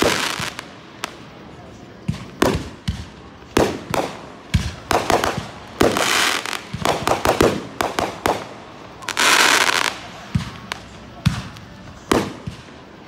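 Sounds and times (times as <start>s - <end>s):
fireworks banging: 0.0s - 13.0s
fireworks crackling: 0.0s - 13.0s.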